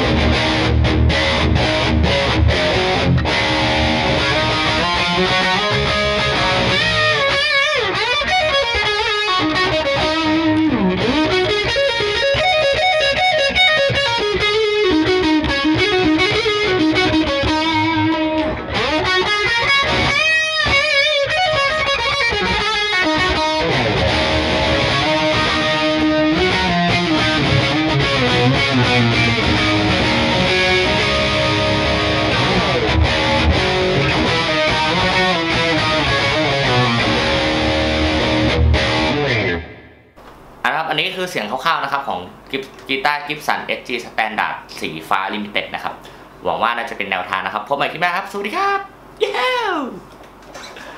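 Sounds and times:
distorted electric guitar lead: 0.0 - 40.6.

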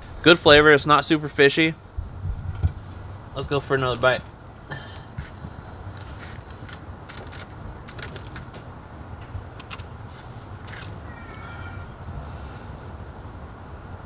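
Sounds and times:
steady low rumble: 0.0 - 11.1
fork clicking and scraping: 5.0 - 8.6.

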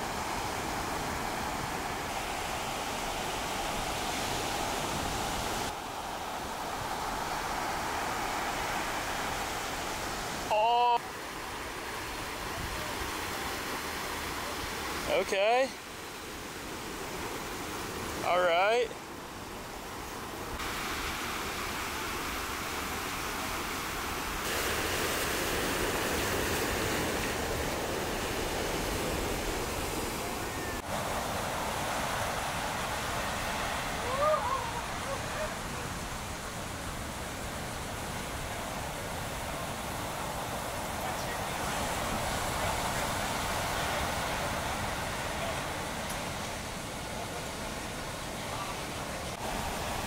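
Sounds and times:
ocean waves breaking: 0.0 - 50.0
wind: 0.0 - 50.0.

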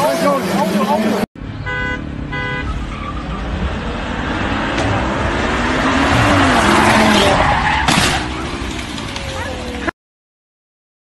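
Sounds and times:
car engine revving: 1.4 - 9.9
car tyres squealing: 1.6 - 9.9.

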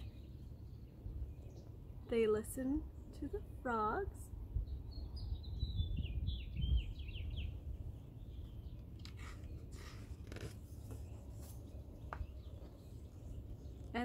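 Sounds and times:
book pages turning: 8.9 - 12.8.

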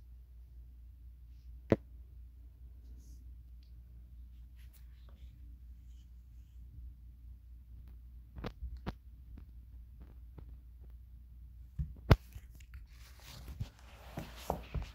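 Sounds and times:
rubbing and fumbling on phone: 4.2 - 6.7, 12.1 - 14.9.

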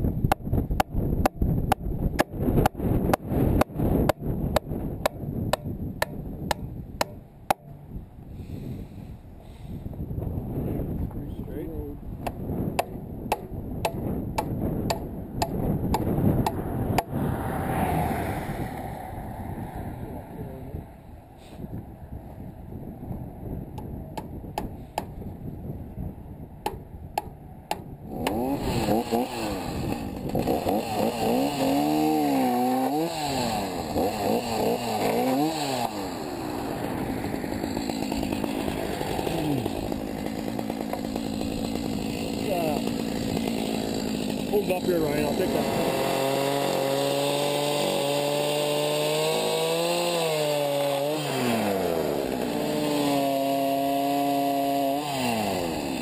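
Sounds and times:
low wind rumble on microphone: 0.0 - 30.8, 36.4 - 40.2
hammer hitting nail into wood: 4.6 - 7.7, 12.3 - 16.6, 26.6 - 27.9.

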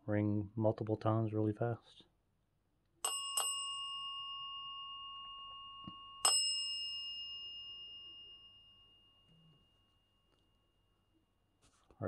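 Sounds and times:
desk bell ringing: 3.0 - 10.9.

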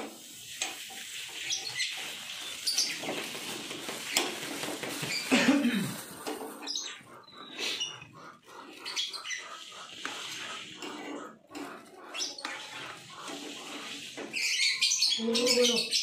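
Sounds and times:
plastic bags crinkling: 2.2 - 6.7.

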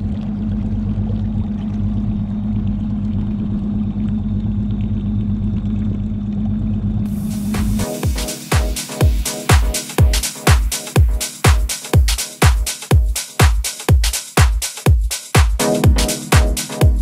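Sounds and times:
outboard motor running: 0.0 - 7.4
dance music with a beat: 7.1 - 17.0.

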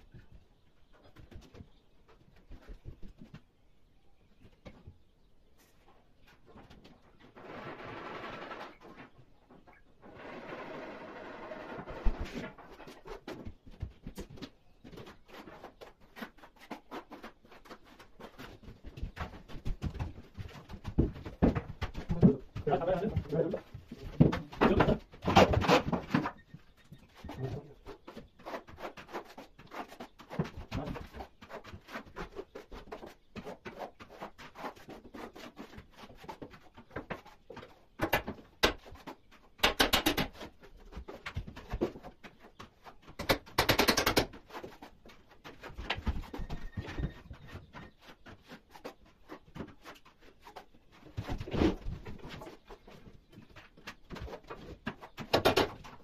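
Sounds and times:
plastering tools scraping on wall: 7.3 - 9.2.

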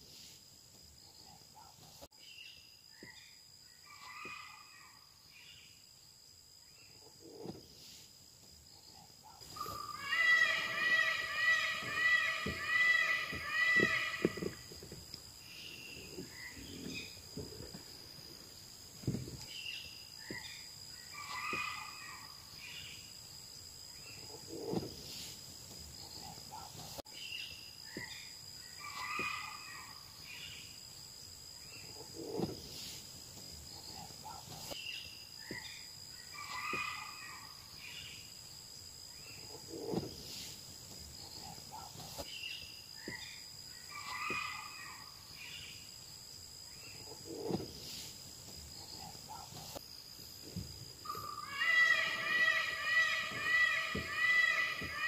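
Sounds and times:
bird chirping call: 9.5 - 14.6, 51.1 - 55.0
high-pitched insect drone: 9.5 - 17.2.

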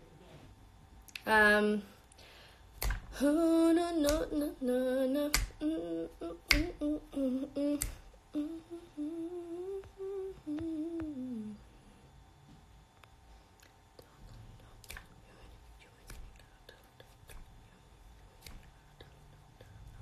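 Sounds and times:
finger snaps: 2.7 - 3.2, 4.0 - 4.4, 5.2 - 5.7, 6.4 - 6.9, 7.6 - 8.2, 14.7 - 15.2, 15.9 - 17.6, 18.4 - 19.8
girl humming: 3.1 - 11.7.

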